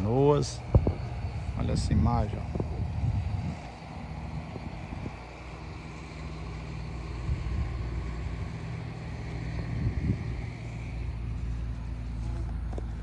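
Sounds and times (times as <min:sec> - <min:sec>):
low engine hum: 0:00.0 - 0:13.0
low rumbles: 0:00.0 - 0:13.0.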